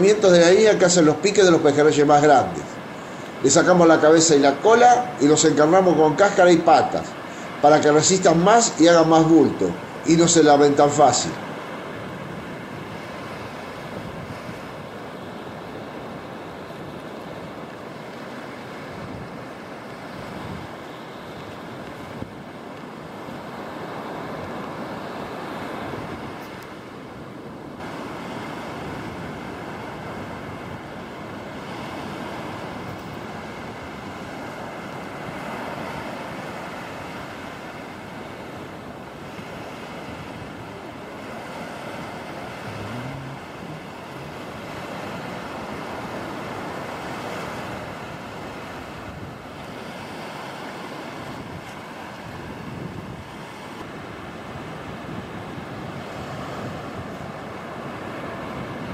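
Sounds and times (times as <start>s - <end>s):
surf washing up beach: 0.0s - 58.9s
wind on microphone: 12.0s - 17.6s, 18.8s - 22.6s, 27.8s - 58.9s.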